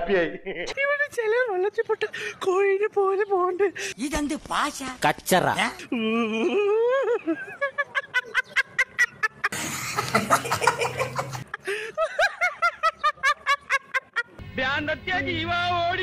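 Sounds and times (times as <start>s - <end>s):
man laughing: 5.8s - 14.4s
woman laughing: 5.9s - 14.4s.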